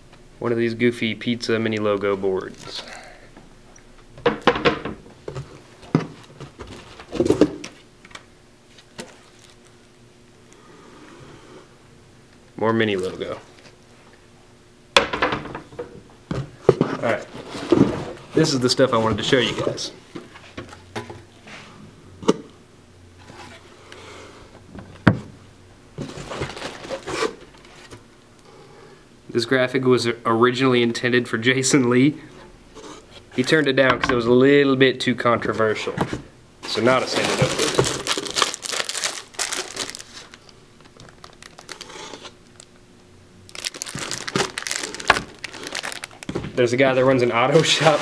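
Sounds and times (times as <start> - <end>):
plastic wrap crinkling: 8.7 - 9.9, 26.0 - 27.4, 36.6 - 42.8, 43.5 - 48.0
rustling: 43.5 - 48.0.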